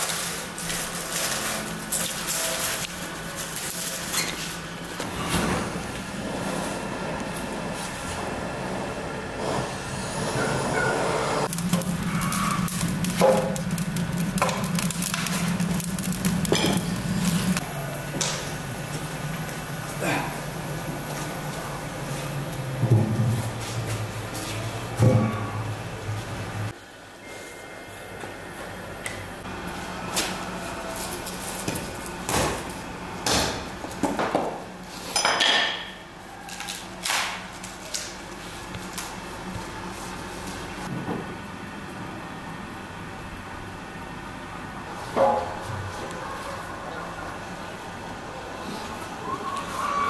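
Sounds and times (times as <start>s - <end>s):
steady low hum: 0.0s - 35.0s
objects knocking and scraping: 11.5s - 17.6s.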